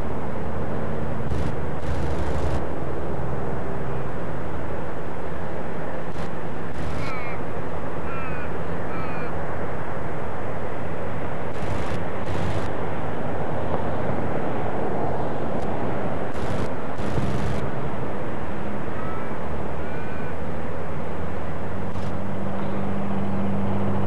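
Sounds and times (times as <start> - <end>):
bird calling: 6.8 - 7.4, 8.1 - 9.4.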